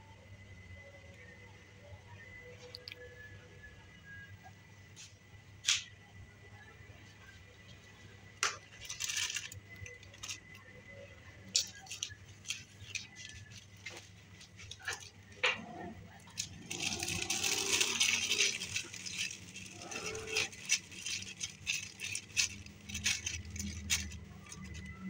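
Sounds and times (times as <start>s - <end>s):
plastic bag crinkling: 8.4s - 25.0s.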